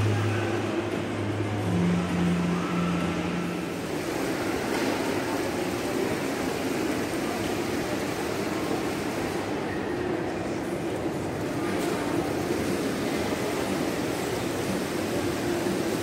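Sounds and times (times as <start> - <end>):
low held tones: 0.0 - 3.8
shopping mall background noise: 0.0 - 16.0.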